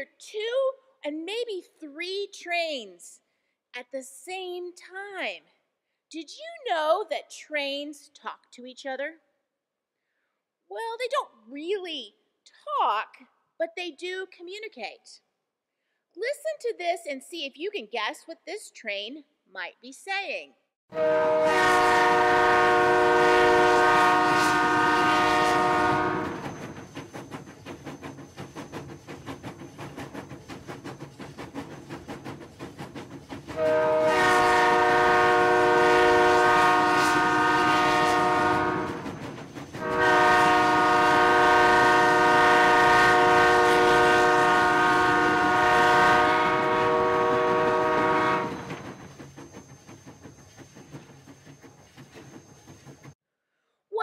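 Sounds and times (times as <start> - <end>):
train horn blasts: 20.9 - 26.4, 33.6 - 39.0, 39.8 - 48.7
train rumbling along rails: 21.0 - 53.2.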